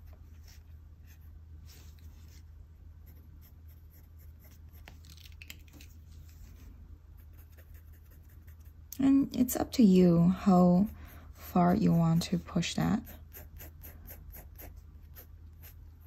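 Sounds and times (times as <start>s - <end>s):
pencil scratching on paper: 0.0s - 5.0s, 7.2s - 8.8s, 10.0s - 16.0s
steady low hum: 0.0s - 16.0s.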